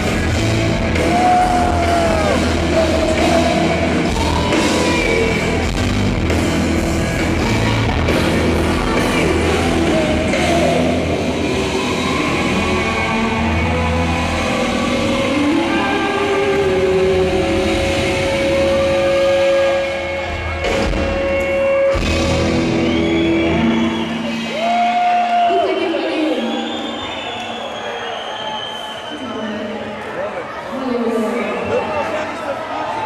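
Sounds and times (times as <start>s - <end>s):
live rock band playing: 0.0s - 25.2s.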